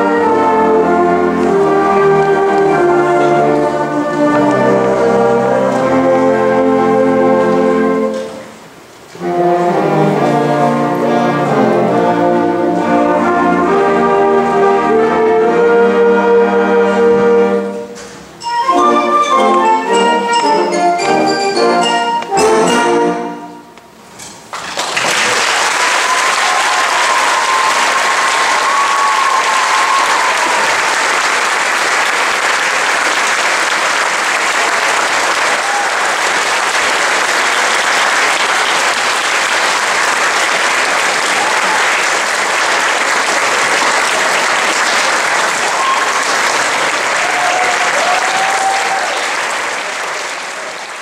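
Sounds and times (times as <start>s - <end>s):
audience applauding: 24.5s - 51.0s.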